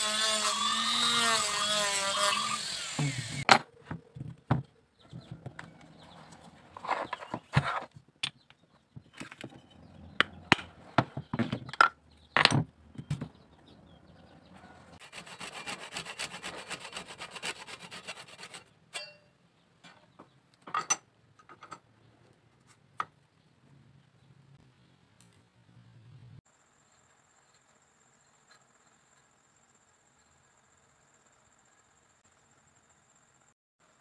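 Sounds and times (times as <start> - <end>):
backsaw cutting wood: 0.0 - 3.5, 15.0 - 18.7.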